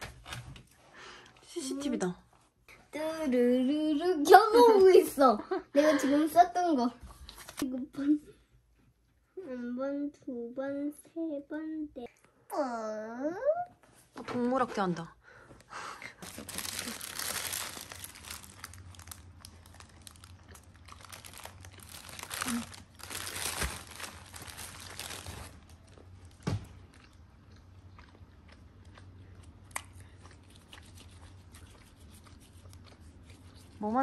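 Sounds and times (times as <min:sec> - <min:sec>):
wrapper crinkling: 0:16.2 - 0:26.5
child biting and chewing: 0:26.8 - 0:33.8.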